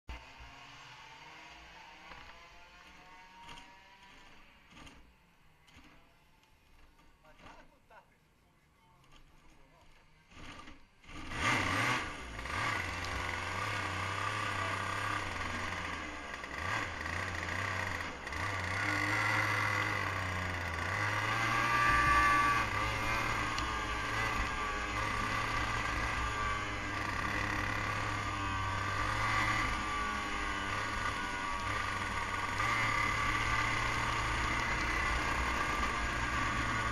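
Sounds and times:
go-kart engine starting: 0:09.1 - 0:36.9
go-kart engine running: 0:09.9 - 0:36.9.

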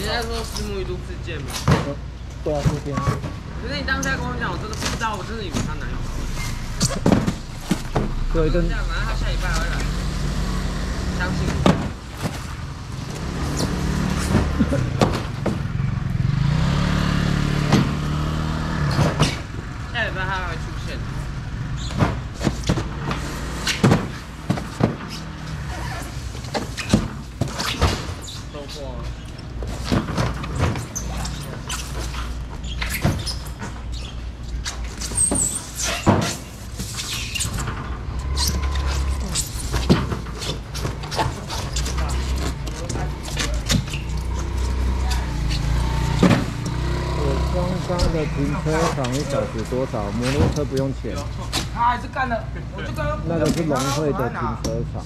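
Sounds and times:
vehicle engine humming: 0:00.0 - 0:27.4, 0:36.4 - 0:53.8
styrofoam boxes knocking and scraping: 0:01.6 - 0:03.4, 0:06.8 - 0:08.2
high squeak: 0:36.9 - 0:39.8.

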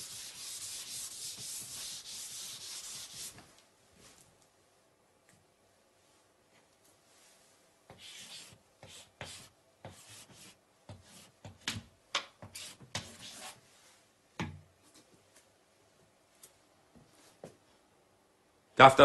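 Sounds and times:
chalk scratching on chalkboard: 0:00.0 - 0:03.4, 0:07.9 - 0:11.6, 0:12.4 - 0:13.6
chalk tapping on board: 0:07.9 - 0:13.4.

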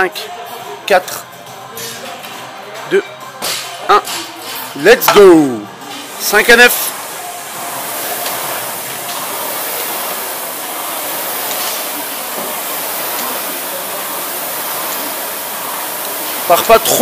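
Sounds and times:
rowing machine fan whoosh: 0:05.8 - 0:17.0.

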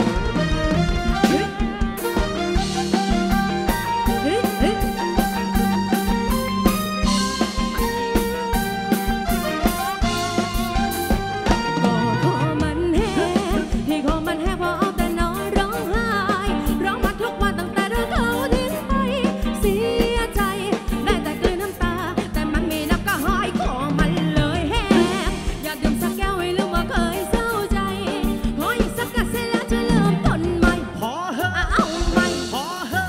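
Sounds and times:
drum kit beat: 0:00.0 - 0:33.0
live band playing: 0:00.0 - 0:33.0
person singing with vibrato: 0:01.2 - 0:02.0, 0:04.1 - 0:05.0, 0:11.6 - 0:33.0.

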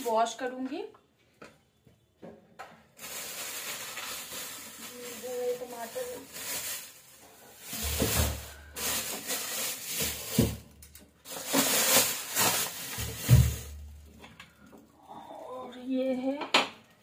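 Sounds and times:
plastic bags crinkling: 0:02.9 - 0:14.9.

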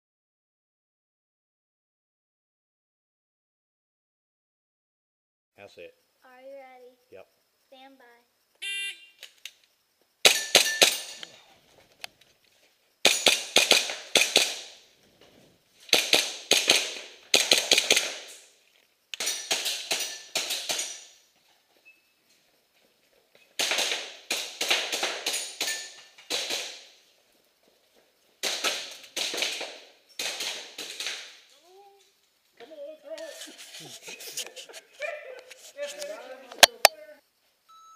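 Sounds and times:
airsoft pistol shots: 0:10.2 - 0:11.3, 0:13.0 - 0:14.8, 0:15.9 - 0:18.4, 0:19.2 - 0:21.1, 0:23.6 - 0:27.0, 0:28.4 - 0:31.4.

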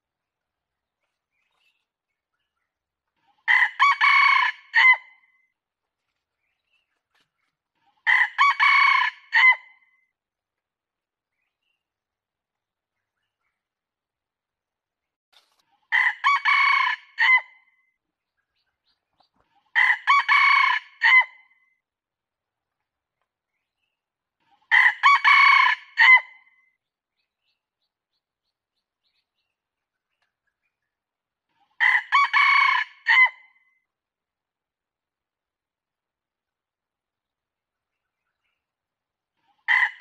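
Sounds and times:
rooster crowing: 0:03.5 - 0:05.0, 0:08.1 - 0:09.6, 0:16.0 - 0:17.4, 0:19.8 - 0:21.3, 0:24.7 - 0:26.3, 0:31.8 - 0:33.4.

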